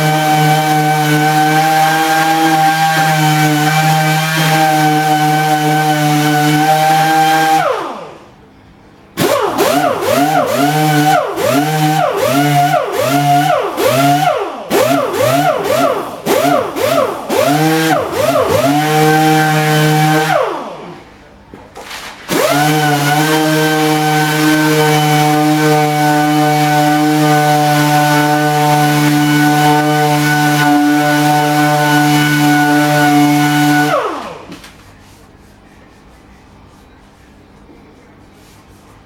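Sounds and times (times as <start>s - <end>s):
air sander whining: 9.2s - 20.9s, 22.3s - 34.5s.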